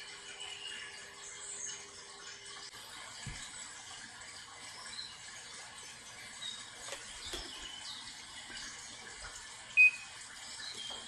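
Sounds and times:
short electronic beep: 9.8 - 10.0.

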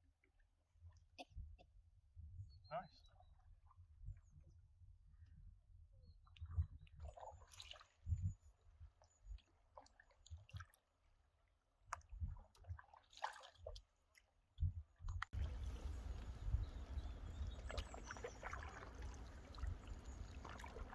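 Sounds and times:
soft water splashes and drips: 6.1 - 20.9
paddle dipping through water: 6.4 - 8.3, 11.8 - 14.2, 15.3 - 20.9.

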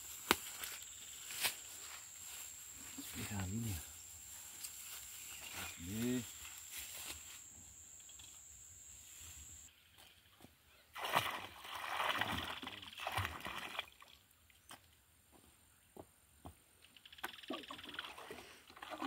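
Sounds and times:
milk splashing into water: 11.0 - 14.2.

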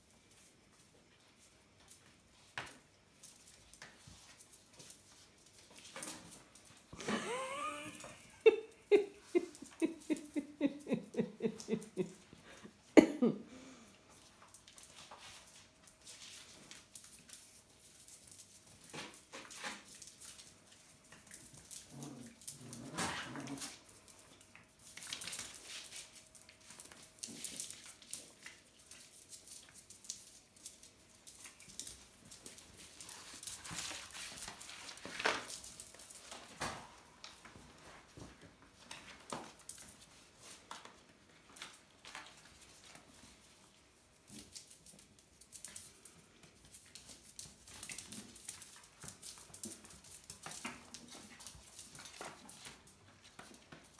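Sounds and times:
paws scuffling on cork floor: 0.3 - 7.1, 14.1 - 53.9
puppy sounds: 6.7 - 12.9.

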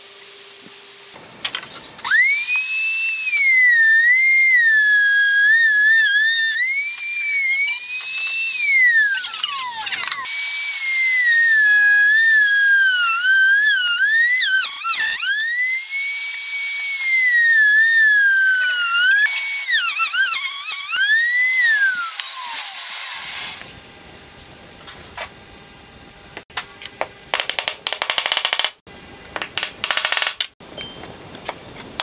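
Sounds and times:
wood router whining: 2.0 - 23.7.

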